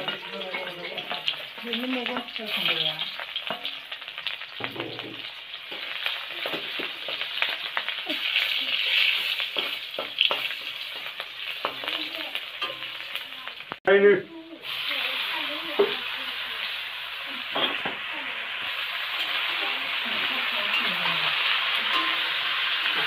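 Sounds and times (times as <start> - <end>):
metal spatula scraping a pan: 0.0 - 13.2, 18.6 - 23.0
onions sizzling in hot oil: 0.0 - 23.0.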